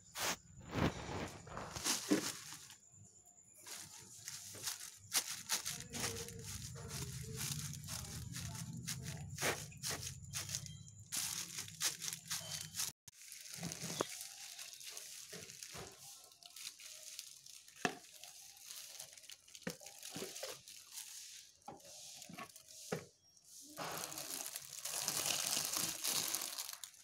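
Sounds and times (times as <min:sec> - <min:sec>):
dry straw crackling: 0:00.2 - 0:02.8, 0:03.6 - 0:22.9, 0:23.7 - 0:27.0
plastic sheet crinkling and tearing: 0:00.2 - 0:02.8, 0:03.7 - 0:22.8, 0:23.8 - 0:27.0.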